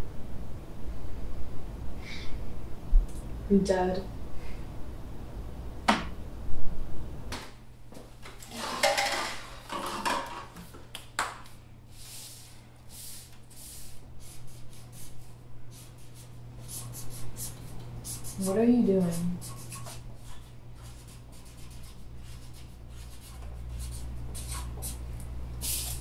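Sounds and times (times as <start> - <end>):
marker scratching on paper: 13.1 - 25.0.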